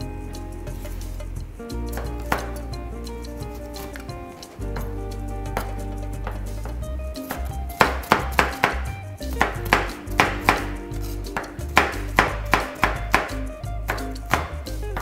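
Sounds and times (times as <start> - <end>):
background music: 0.0 - 15.0
knife chopping on cutting board: 7.8 - 8.8, 9.4 - 10.8, 11.4 - 15.0.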